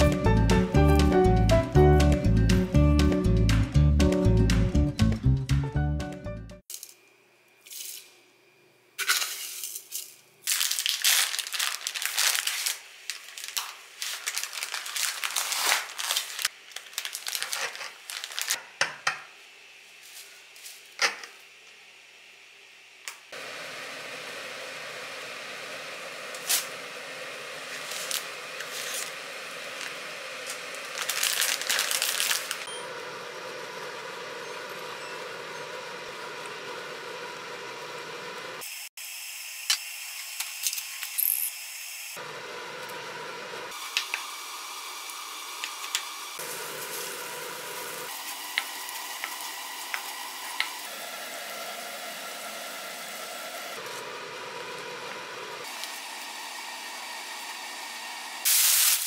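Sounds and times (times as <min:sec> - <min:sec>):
dry spaghetti clicking and rattling: 0:10.0 - 0:18.6, 0:30.8 - 0:32.6.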